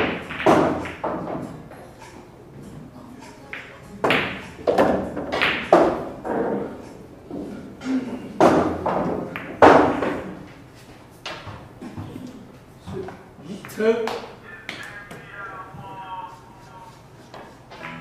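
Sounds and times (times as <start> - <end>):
billiard balls clacking: 0.0 - 10.6, 17.3 - 18.0.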